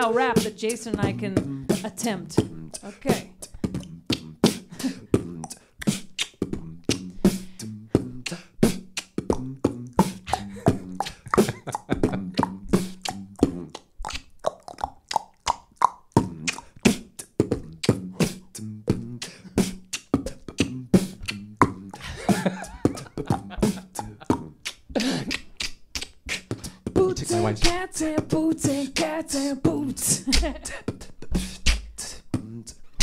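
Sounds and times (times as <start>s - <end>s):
human beatboxing: 0.0s - 33.0s
hummed bass line: 0.9s - 4.5s, 5.1s - 5.6s, 6.5s - 8.3s, 9.3s - 13.8s, 16.2s - 16.6s, 17.5s - 19.2s, 20.3s - 25.3s, 26.9s - 30.7s.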